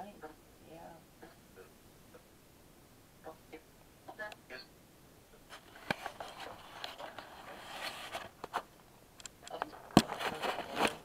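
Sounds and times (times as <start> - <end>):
clothing rustling: 5.5 - 8.7.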